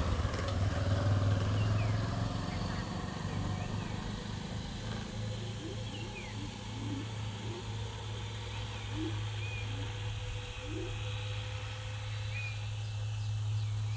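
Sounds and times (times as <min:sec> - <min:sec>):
low rising calls: 0:00.0 - 0:13.9
steady low hum: 0:00.0 - 0:13.9
bird chirps: 0:05.4 - 0:07.7, 0:08.5 - 0:11.0.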